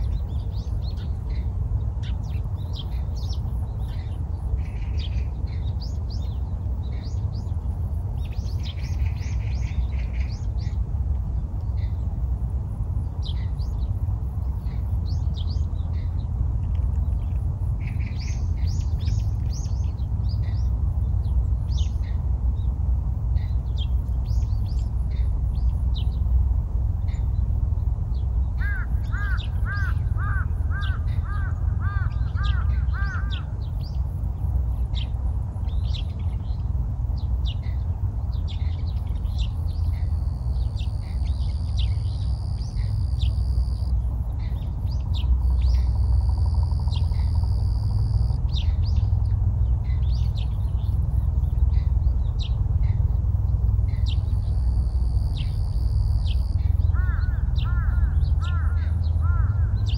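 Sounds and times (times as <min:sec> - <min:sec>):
small birds chirping: 0:00.0 - 0:59.9
steady high whine: 0:00.0 - 0:59.9
steady low rumble: 0:00.0 - 0:59.9.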